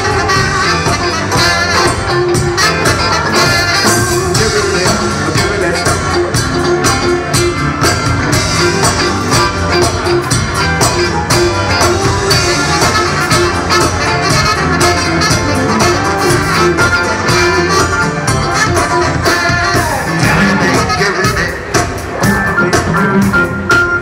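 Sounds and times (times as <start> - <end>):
live band playing upbeat music: 0.0 - 24.0.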